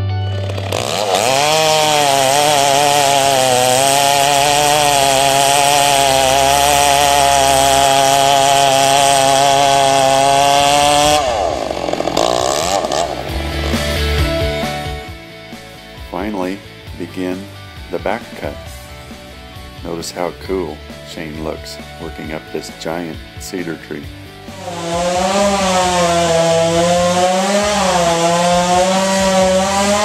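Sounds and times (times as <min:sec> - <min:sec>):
chainsaw cutting wood: 0:00.3 - 0:16.4, 0:24.4 - 0:30.0.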